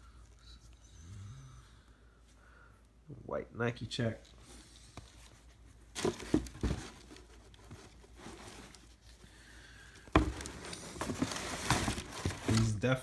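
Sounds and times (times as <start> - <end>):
light cardboard bumps: 10.0 - 12.7.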